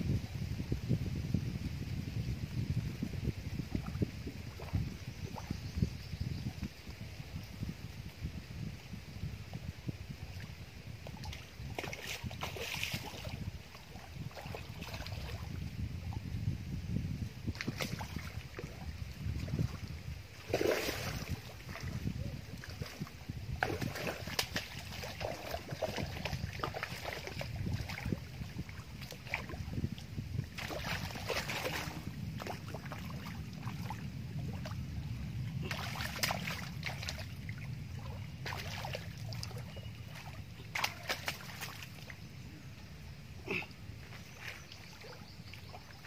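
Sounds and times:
steady low rumble: 0.0s - 46.0s
fish splashing in water: 23.6s - 28.3s, 30.5s - 34.8s, 35.6s - 42.0s.

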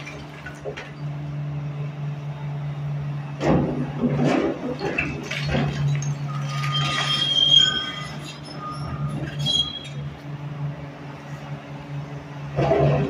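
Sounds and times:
concrete debris crashing: 0.0s - 1.0s, 3.5s - 9.7s
diesel engine running: 0.0s - 13.0s
high metallic squeals: 5.8s - 10.3s.

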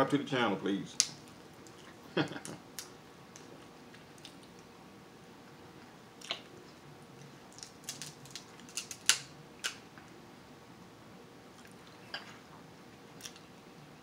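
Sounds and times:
crab shells cracking and snapping: 1.0s - 1.8s, 7.2s - 9.8s.

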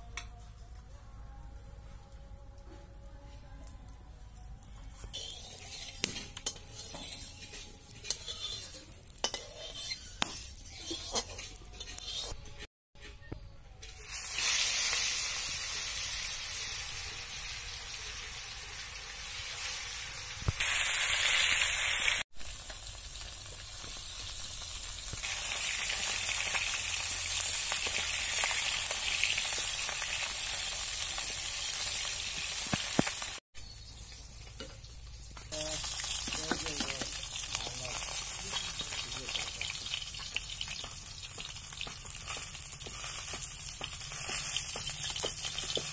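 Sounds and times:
fish sizzling in hot oil: 5.1s - 12.2s, 14.0s - 45.9s.

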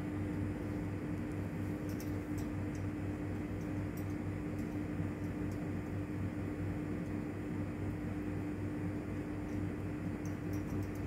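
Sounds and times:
machine hum: 0.0s - 11.0s.

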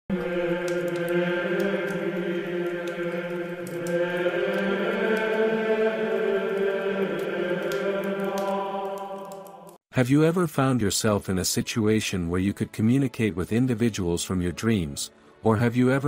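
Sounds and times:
chant-like voices holding notes: 0.1s - 9.8s.

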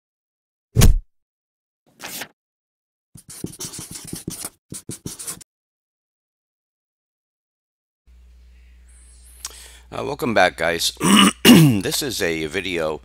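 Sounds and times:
brief swish: 0.8s - 1.0s
marker pen scratching on paper: 3.2s - 5.4s.

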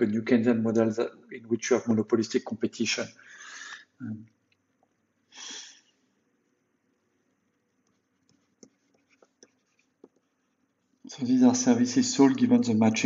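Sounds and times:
short breath: 3.2s - 3.9s, 5.3s - 6.0s
stylus tapping on tablet screen: 7.8s - 10.4s.

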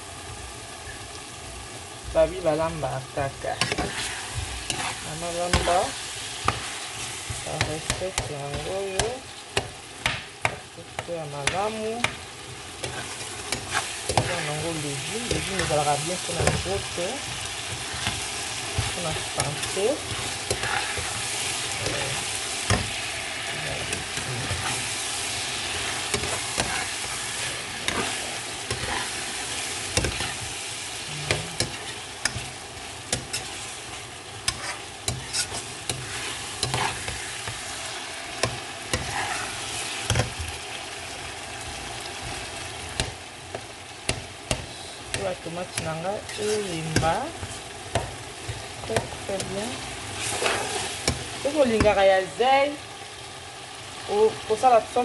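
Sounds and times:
vegetables sizzling in a pot: 0.0s - 55.0s
spoon scraping a pot: 3.6s - 5.8s, 12.8s - 23.0s, 25.6s - 29.2s, 29.9s - 30.5s, 31.2s - 37.6s, 38.4s - 40.4s, 44.5s - 48.2s, 48.9s - 51.2s.

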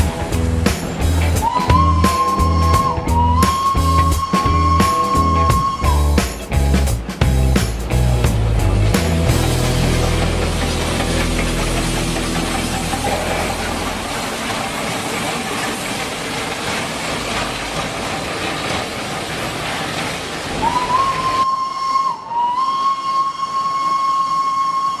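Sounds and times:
steam locomotive hissing: 0.0s - 25.0s
steam whistle: 1.3s - 6.2s, 20.6s - 25.0s.

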